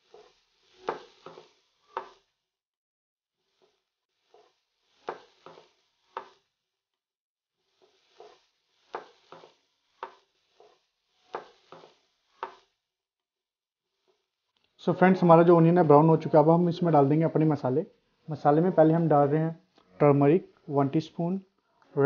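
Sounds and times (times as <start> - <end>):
onions sizzling: 0.0 - 2.3, 3.4 - 6.6, 7.6 - 12.8
wooden spatula scraping pan: 7.9 - 12.7.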